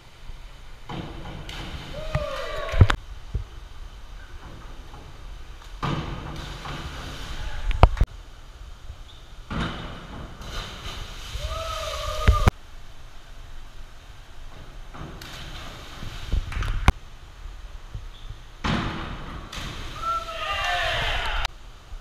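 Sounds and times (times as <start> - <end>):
diving board bangs: 0.9 - 2.6, 5.8 - 7.4, 18.6 - 20.1
water splashing: 0.9 - 8.1, 9.5 - 12.5, 15.1 - 17.0, 19.0 - 21.5
person shouting: 11.4 - 12.5, 20.0 - 21.5.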